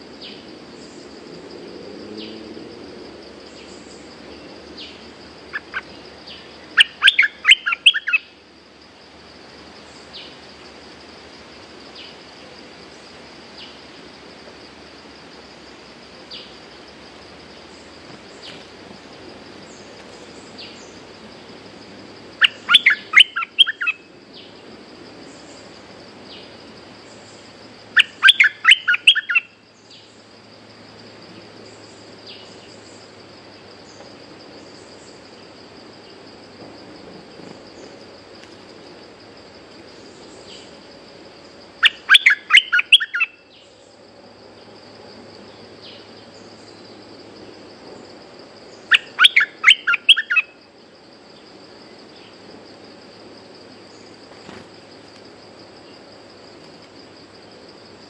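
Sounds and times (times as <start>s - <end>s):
high insect drone: 0.0s - 58.0s
bird singing bubbling notes: 6.8s - 8.2s, 22.4s - 24.0s, 48.9s - 50.5s.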